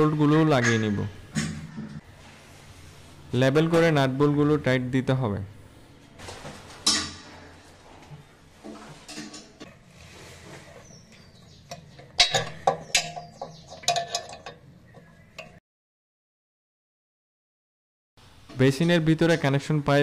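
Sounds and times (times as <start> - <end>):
metal nuts clicking and clinking: 11.7 - 15.6.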